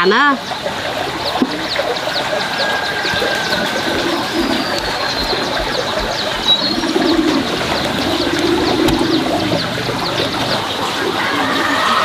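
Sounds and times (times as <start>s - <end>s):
small birds chirping: 0.0s - 12.0s
pigeon cooing: 1.2s - 12.0s.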